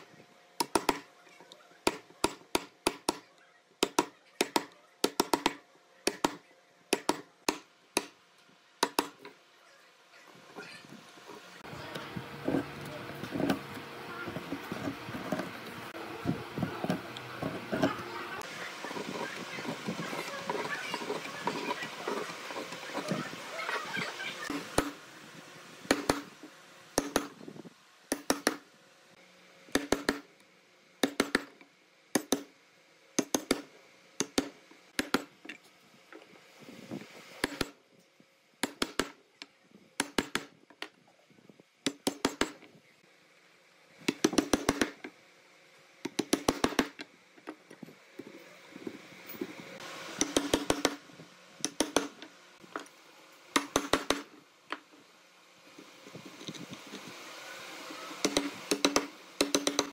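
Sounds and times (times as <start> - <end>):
mallet striking a chisel: 27.0 - 27.3, 50.2 - 51.0, 51.6 - 52.2, 58.2 - 59.9.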